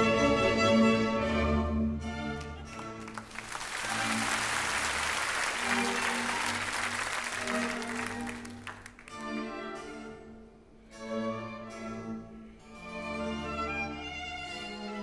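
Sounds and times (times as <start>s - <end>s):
orchestral music: 0.0s - 15.0s
audience applauding: 2.4s - 9.2s.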